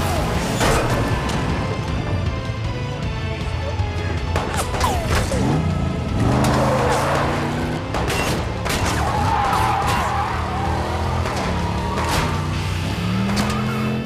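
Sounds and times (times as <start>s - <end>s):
film music score: 0.0s - 14.0s
car engine revving: 4.4s - 14.0s.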